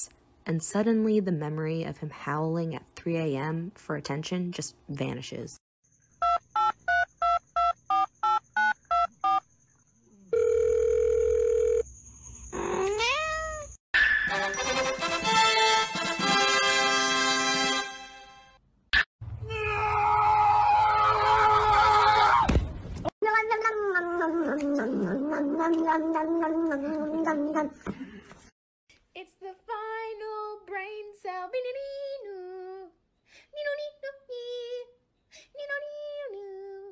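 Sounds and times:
kitten meowing: 12.6s - 13.7s
music: 14.3s - 18.6s.

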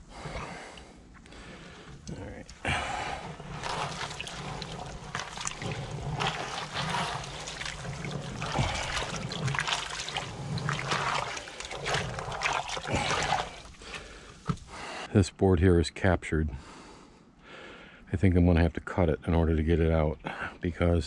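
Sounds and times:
water trickling and splashing: 1.5s - 15.0s
plastic bucket knocks and scrapes: 3.2s - 14.8s.

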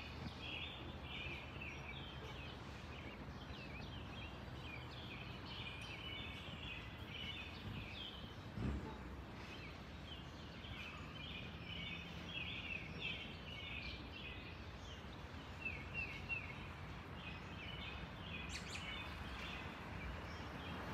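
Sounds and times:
birds chirping: 0.0s - 20.9s
thump: 8.6s - 9.1s.

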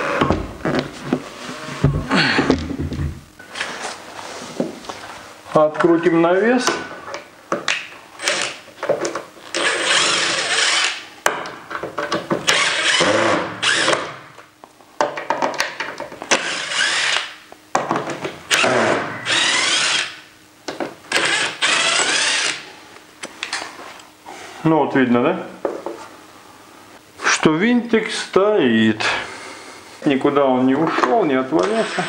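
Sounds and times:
cordless drill driving screws: 9.5s - 11.0s, 12.5s - 14.2s, 16.3s - 17.3s, 18.5s - 20.1s, 21.1s - 22.6s, 31.6s - 32.0s.

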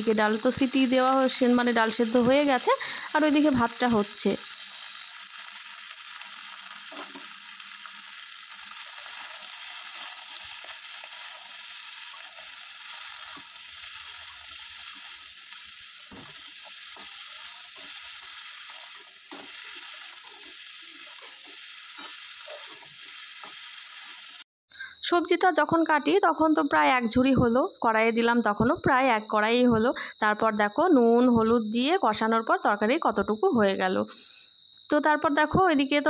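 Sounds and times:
vegetables sizzling in oil: 0.0s - 24.5s.

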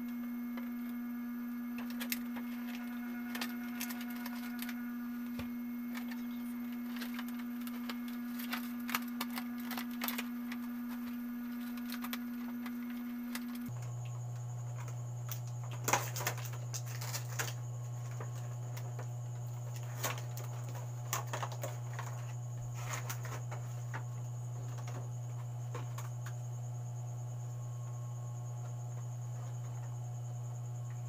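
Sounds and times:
steady low hum: 0.0s - 31.0s
small objects clicking and tapping: 1.8s - 14.2s.

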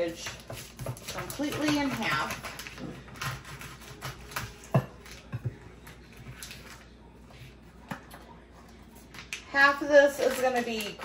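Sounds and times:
knife cutting bacon package: 0.1s - 5.4s, 10.1s - 11.0s.

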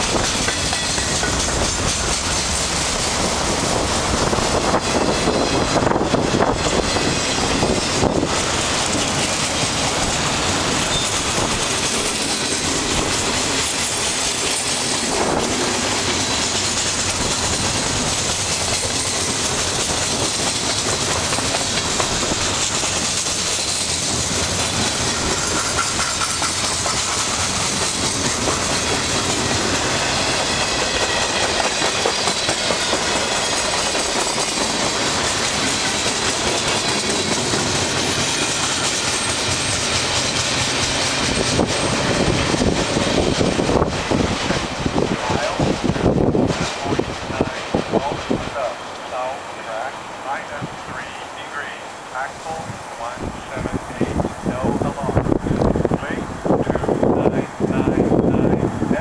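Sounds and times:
train wheels rolling on rail: 0.0s - 59.0s
wheels clicking over track: 5.8s - 48.4s.

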